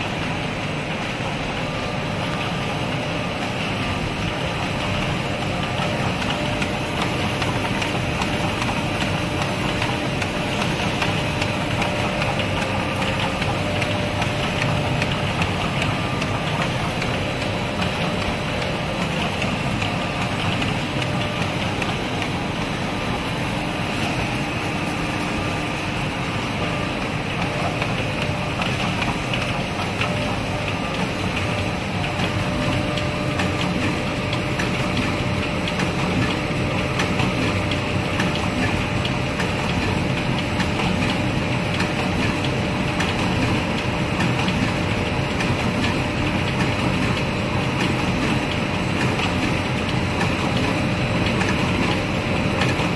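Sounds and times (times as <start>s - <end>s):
machine rollers whirring: 0.0s - 52.9s.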